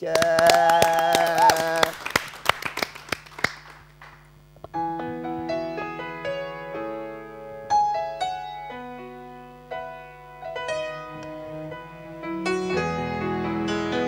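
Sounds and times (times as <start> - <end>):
applause: 0.0 - 4.3
slow piano intro: 4.8 - 14.0.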